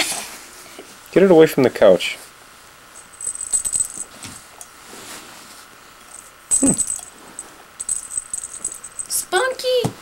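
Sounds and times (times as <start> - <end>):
toy ball rattling and jingling: 2.9 - 4.7, 6.0 - 9.4.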